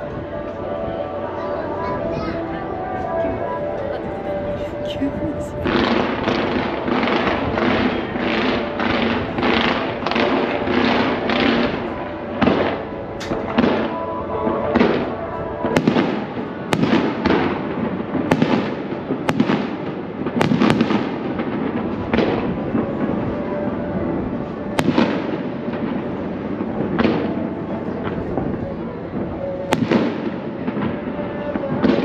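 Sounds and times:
fireworks bangs: 0:00.0 - 0:32.0.

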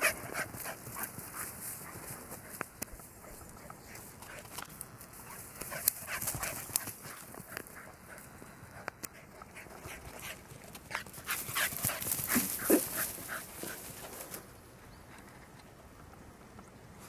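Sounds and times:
dog rustling through dry grass: 0:00.0 - 0:08.4, 0:09.9 - 0:14.5.

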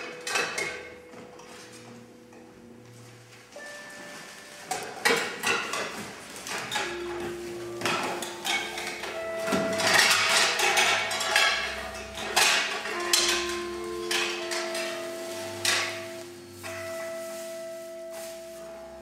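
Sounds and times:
clattering knocks and hits: 0:04.7 - 0:16.9.

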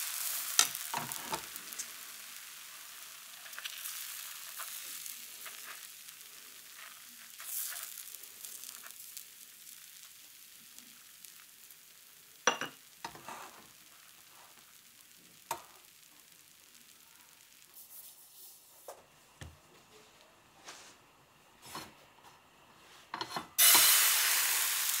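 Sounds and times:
batter sizzling in a pan: 0:00.0 - 0:25.0
wooden spreader sweeping: 0:20.6 - 0:21.0.

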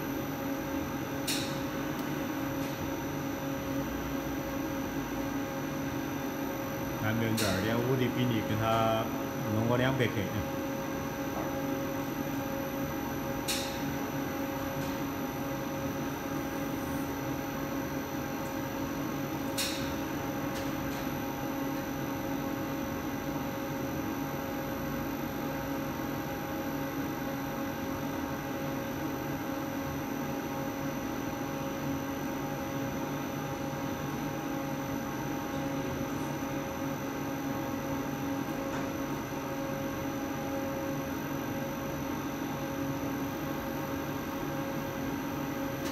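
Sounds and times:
extruder machine hum: 0:00.0 - 0:45.9.

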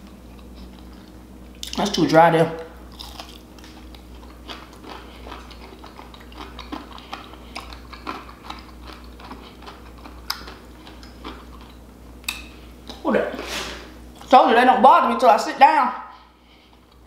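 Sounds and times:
person chewing: 0:00.0 - 0:02.0, 0:02.8 - 0:13.0, 0:16.3 - 0:17.0.

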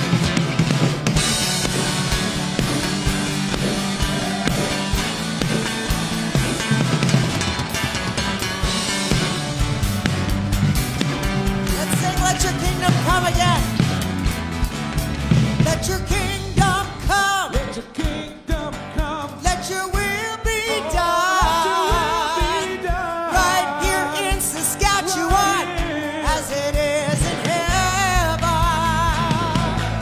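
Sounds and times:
acoustic guitars: 0:00.0 - 0:30.0
band with drums: 0:00.0 - 0:30.0
man and woman singing: 0:11.8 - 0:13.8, 0:15.6 - 0:30.0.

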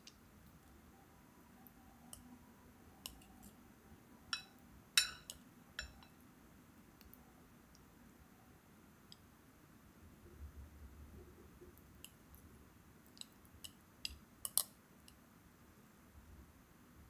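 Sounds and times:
chopsticks clinking on ceramic bowl: 0:04.3 - 0:06.2.

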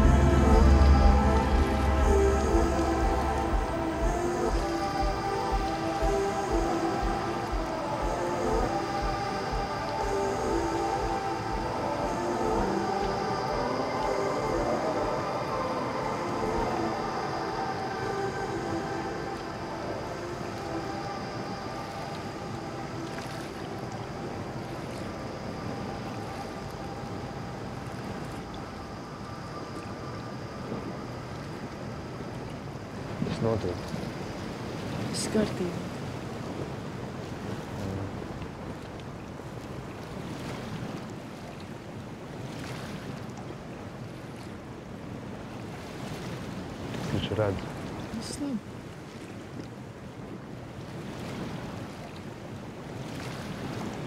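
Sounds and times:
outboard engine running: 0:00.0 - 0:07.7
low rumble: 0:00.0 - 0:16.7
sea: 0:00.0 - 0:54.0
wind: 0:00.0 - 0:54.0.

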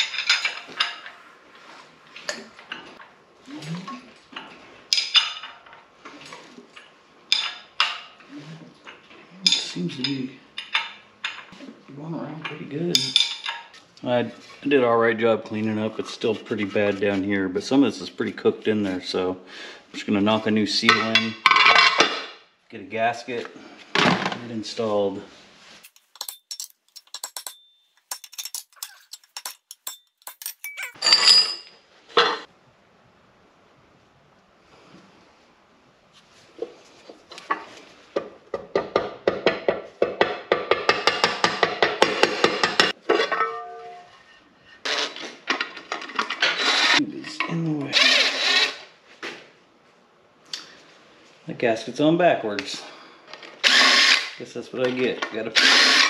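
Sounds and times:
metallic clinks and clanks: 0:00.0 - 0:01.2, 0:25.8 - 0:31.8.

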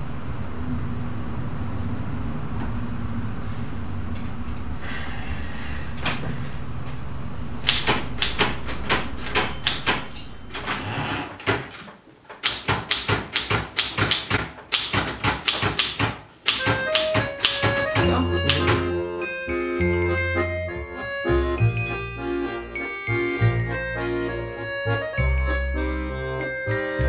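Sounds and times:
low steady hum: 0:00.0 - 0:11.0
typewriter keys clacking: 0:07.6 - 0:18.9
accordion-like music: 0:16.5 - 0:27.0.

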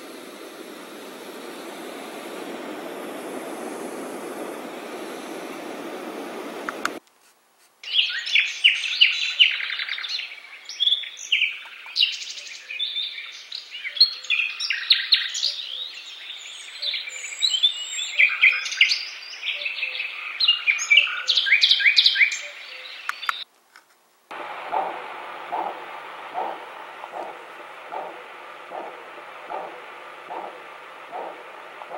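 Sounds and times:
steady rushing noise: 0:00.0 - 0:07.0, 0:24.3 - 0:31.9
recorded birdsong chirps: 0:07.8 - 0:23.5, 0:24.3 - 0:31.9.

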